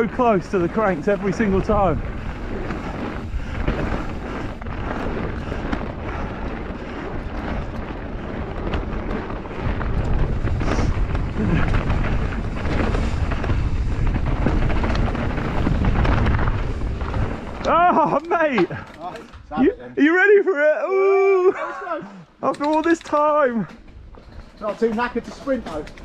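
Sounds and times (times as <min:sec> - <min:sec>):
wind buffeting microphone: 0:00.0 - 0:19.5
bike rattles and knocks: 0:00.0 - 0:19.6, 0:22.4 - 0:26.0
bike tyres rolling on trail: 0:00.0 - 0:20.4, 0:21.0 - 0:26.0.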